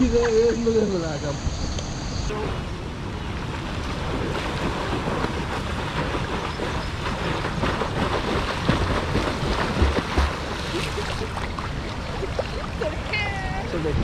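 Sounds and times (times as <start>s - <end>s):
wind on microphone: 0.0s - 14.0s
water splashing from swimmers: 3.2s - 14.0s.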